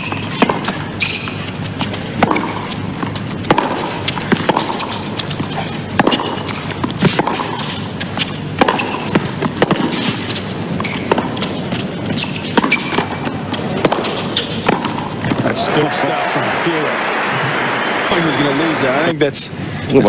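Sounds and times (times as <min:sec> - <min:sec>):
racquets striking tennis ball: 0:00.0 - 0:15.6
crowd hush: 0:15.5 - 0:18.7.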